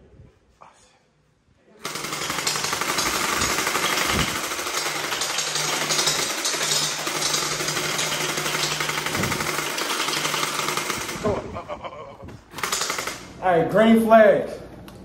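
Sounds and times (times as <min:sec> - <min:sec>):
rapid rattle of shots: 0:01.8 - 0:11.5, 0:12.5 - 0:13.4.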